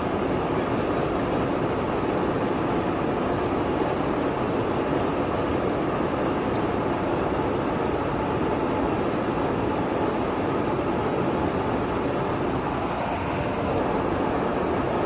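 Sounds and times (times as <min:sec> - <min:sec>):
jet engine noise: 0:00.0 - 0:15.0
airflow rushing: 0:08.2 - 0:15.0.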